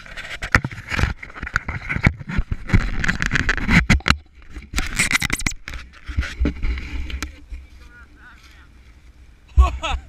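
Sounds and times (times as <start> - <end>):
hand knocking and scraping camera: 0.0 - 7.7.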